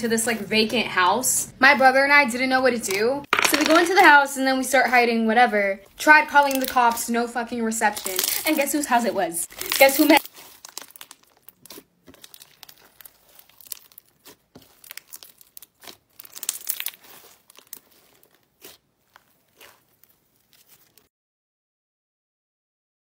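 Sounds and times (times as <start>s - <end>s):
slime crackling and tearing: 7.9s - 8.7s, 9.5s - 21.1s.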